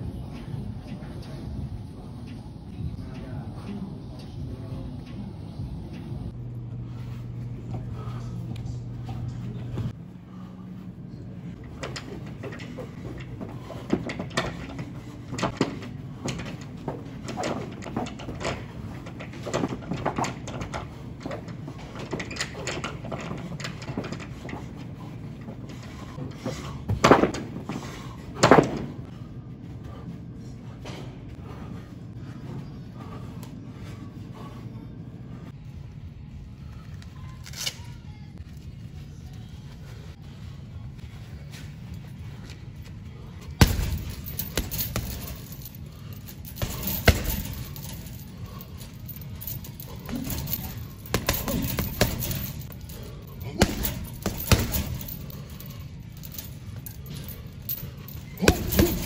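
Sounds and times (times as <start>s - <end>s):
low steady hum: 0.0s - 59.0s
gloves thumping punching bag: 43.6s - 45.6s, 46.4s - 48.2s, 50.0s - 52.7s, 53.4s - 55.3s, 58.3s - 59.0s.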